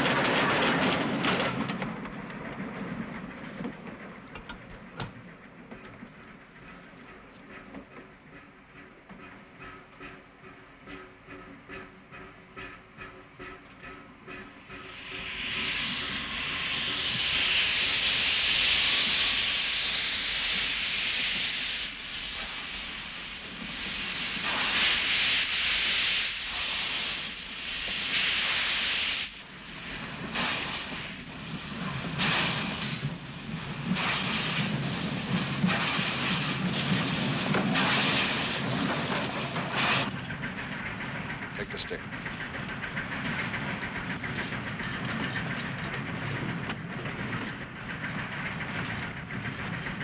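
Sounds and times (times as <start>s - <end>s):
steam locomotive chuffing: 0.0s - 50.0s
steam hissing: 9.6s - 40.7s.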